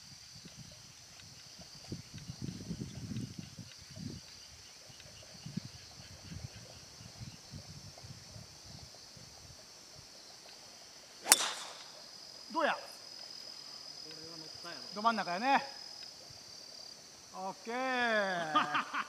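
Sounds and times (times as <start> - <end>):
golf club striking ball: 11.2 - 12.1.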